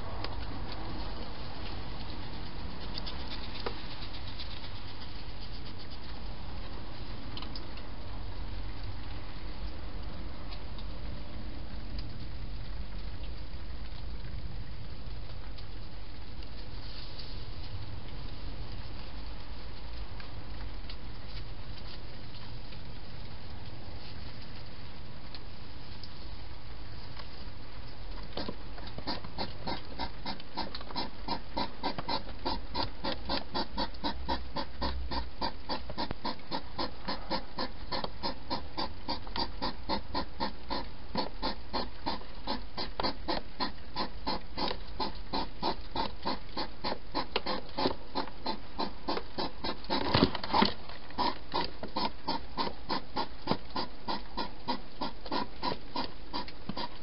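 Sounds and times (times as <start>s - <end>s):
hedgehogs chewing wet chomps: 28.4s - 57.0s.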